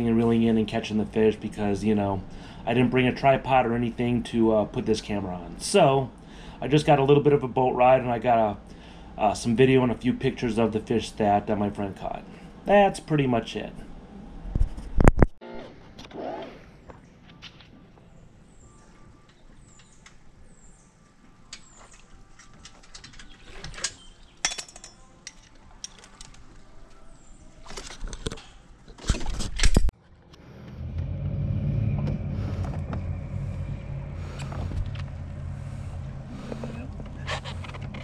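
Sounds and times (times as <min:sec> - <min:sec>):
boat motor humming: 0:30.2 - 0:38.0.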